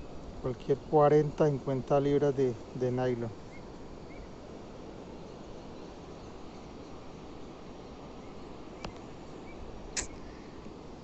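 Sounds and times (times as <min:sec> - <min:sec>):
high chirps of birds or insects: 0:00.0 - 0:11.0
steady rushing water: 0:00.0 - 0:11.0
sharp click: 0:10.0 - 0:10.2.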